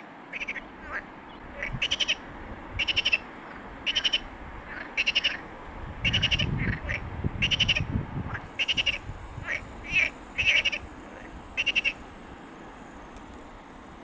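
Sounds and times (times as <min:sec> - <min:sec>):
animal chattering call: 0:00.3 - 0:02.2, 0:02.8 - 0:12.0.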